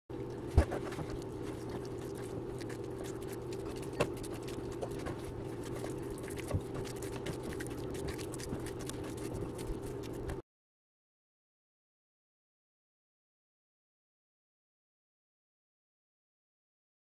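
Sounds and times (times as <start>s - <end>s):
steady low hum: 0.1s - 10.4s
small clicks and squelches: 0.3s - 10.4s.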